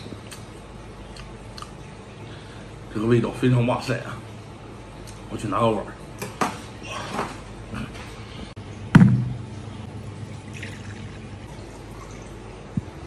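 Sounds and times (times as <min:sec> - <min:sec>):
loud knock: 0:09.0 - 0:09.4
water pouring into a bowl: 0:10.3 - 0:12.5.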